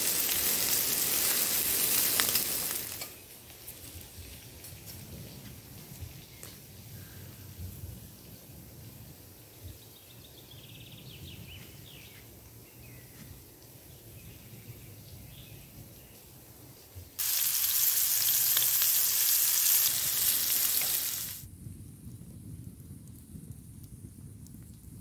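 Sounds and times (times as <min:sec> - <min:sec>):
meat sizzling in a frying pan: 0:00.0 - 0:03.3, 0:17.2 - 0:21.4.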